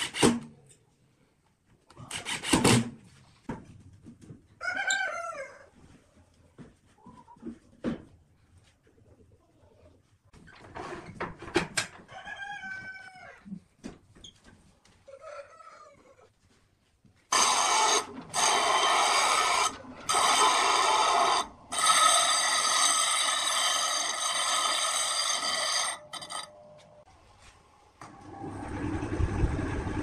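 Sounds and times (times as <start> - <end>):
bench grinder grinding steel: 17.3 - 26.6.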